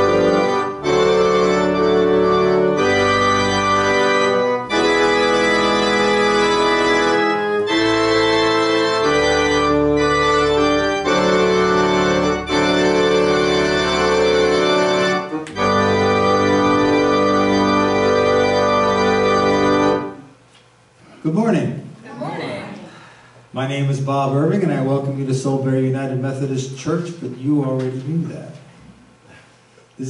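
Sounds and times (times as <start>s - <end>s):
organ playing held chords: 0.0s - 20.4s.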